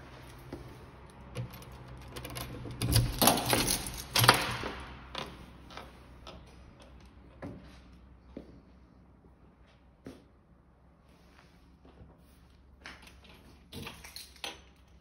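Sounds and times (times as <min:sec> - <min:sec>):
key turning in lock: 0:01.0 - 0:04.7.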